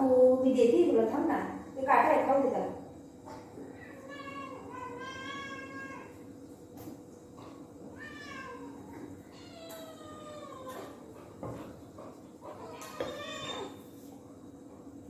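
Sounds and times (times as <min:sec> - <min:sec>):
cat meowing: 0:03.8 - 0:06.2, 0:07.9 - 0:11.0, 0:12.6 - 0:13.8.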